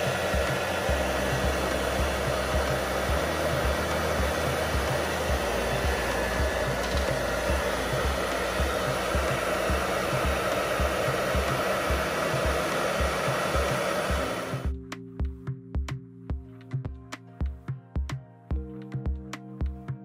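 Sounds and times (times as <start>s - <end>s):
hair dryer blowing: 0.0s - 14.7s
background music with steady beat: 0.0s - 20.0s.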